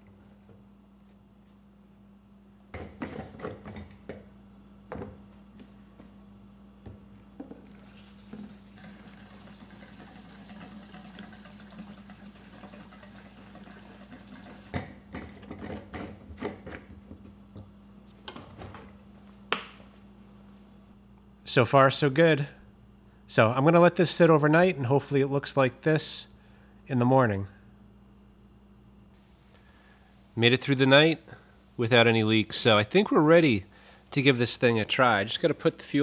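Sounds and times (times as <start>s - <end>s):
fuel pouring into tank: 7.7s - 14.8s.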